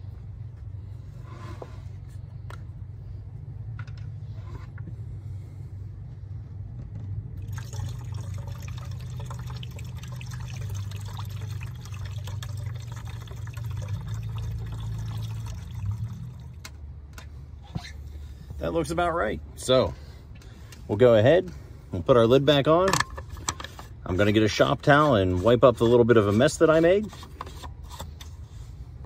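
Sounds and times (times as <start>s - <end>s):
steady low rumble: 0.0s - 11.3s
liquid pouring and splashing: 7.4s - 16.6s.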